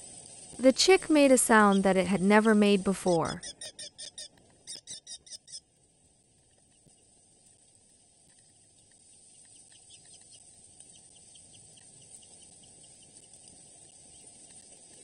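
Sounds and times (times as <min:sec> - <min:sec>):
faint steady hiss: 0:00.0 - 0:03.8, 0:05.7 - 0:15.0
bird chick shrill calls: 0:03.4 - 0:05.6.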